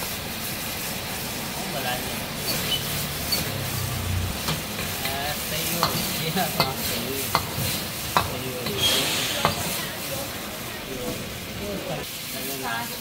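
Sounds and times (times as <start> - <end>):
food sizzling in a wok: 0.0 - 13.0
ladle clanking on wok: 2.4 - 3.8, 4.4 - 10.4.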